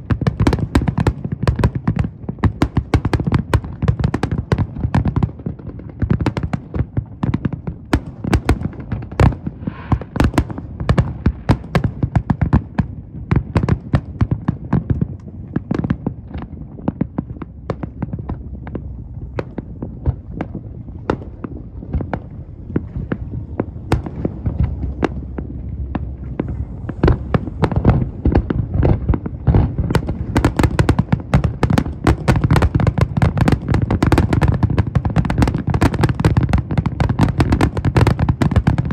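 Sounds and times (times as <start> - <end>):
low rumble: 16.2 - 32.1.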